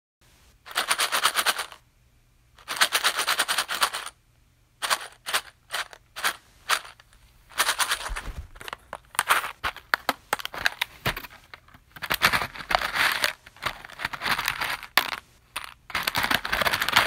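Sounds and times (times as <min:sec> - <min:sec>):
push pins rattling: 0:04.8 - 0:17.0.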